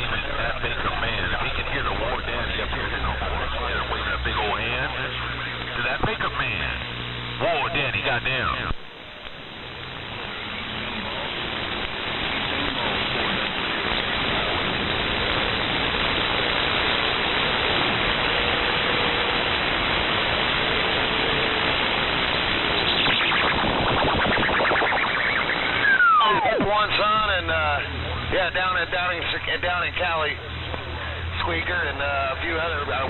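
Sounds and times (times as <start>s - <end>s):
radio static hiss: 0.0s - 33.0s.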